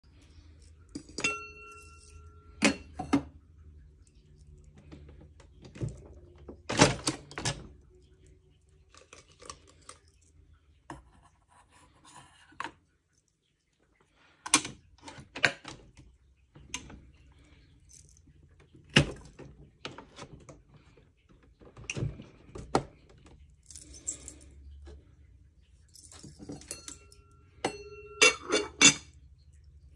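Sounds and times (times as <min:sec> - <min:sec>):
ringing metallic clink: 0:01.0 - 0:03.1, 0:26.0 - 0:29.0.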